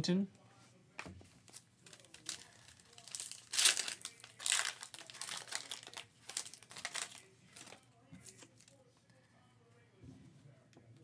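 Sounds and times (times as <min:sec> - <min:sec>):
foil wrapper crinkling and tearing: 0:01.5 - 0:08.7.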